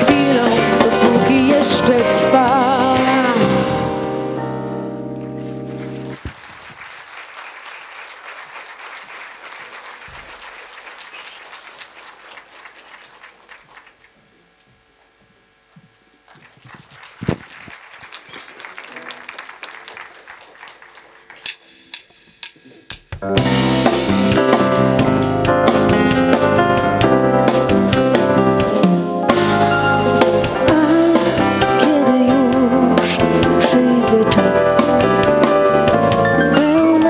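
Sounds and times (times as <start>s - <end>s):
audience applauding: 5.2s - 14.2s, 16.2s - 21.5s
band final chord: 21.6s - 36.4s.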